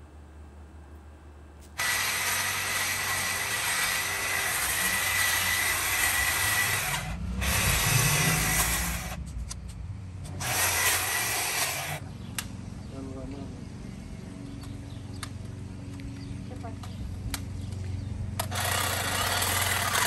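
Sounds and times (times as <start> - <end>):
electric hedge trimmer whining: 1.8 - 9.2, 10.3 - 12.0, 18.2 - 20.0.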